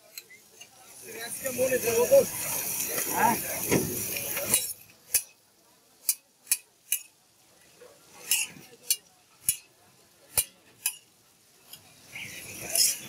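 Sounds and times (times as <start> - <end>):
metal spatulas clinking on pan: 4.2 - 5.4, 6.0 - 7.2, 8.2 - 11.9, 12.6 - 13.0.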